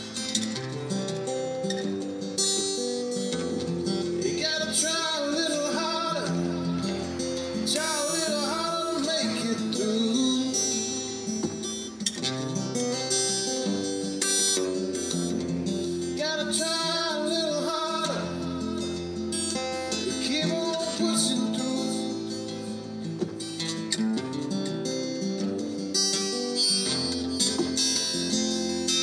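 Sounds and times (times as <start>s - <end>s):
acoustic guitar: 0.0s - 29.0s
man singing: 3.5s - 11.4s, 15.2s - 23.0s.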